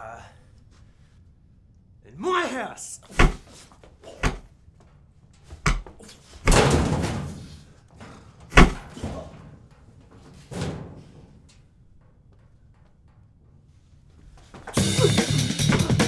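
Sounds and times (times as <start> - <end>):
body slamming against metal lockers: 3.1 - 4.5, 5.5 - 11.7.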